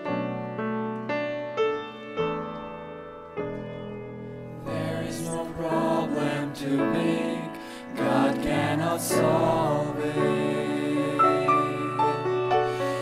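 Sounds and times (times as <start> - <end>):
grand piano playing: 0.0 - 13.0
vocal ensemble singing: 4.6 - 13.0.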